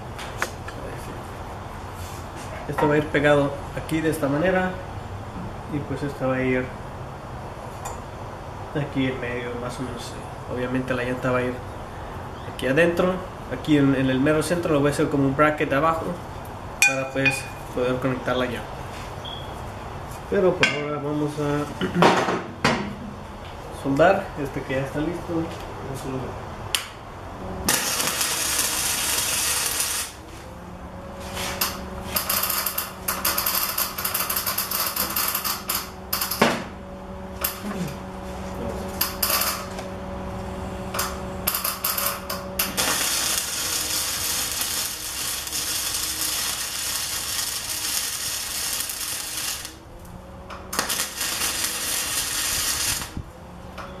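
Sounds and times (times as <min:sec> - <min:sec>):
welding arc crackling: 0:27.4 - 0:53.3.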